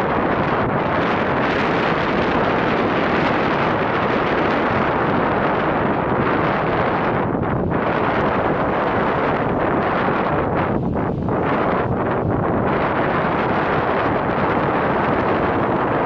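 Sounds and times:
wind blowing over microphone: 0.0s - 16.0s.

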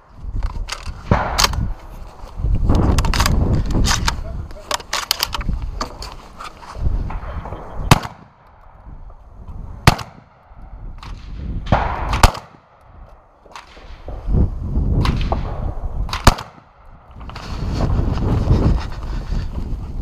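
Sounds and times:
shotgun shots: 1.1s - 1.7s, 7.1s - 8.5s, 9.8s - 12.8s, 15.0s - 16.8s.

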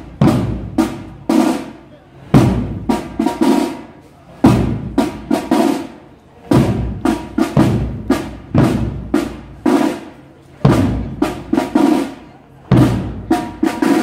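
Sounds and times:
procession drums beating: 0.0s - 1.6s, 2.4s - 3.8s, 6.5s - 10.0s.

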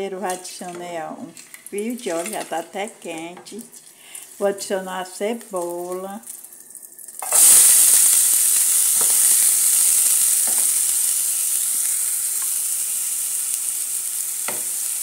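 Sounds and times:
onion sizzling in hot oil: 3.7s - 15.0s.

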